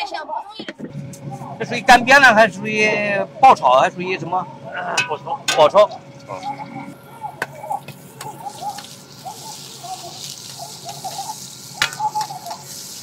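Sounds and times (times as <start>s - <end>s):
peppers sizzling in hot oil: 7.8s - 13.0s.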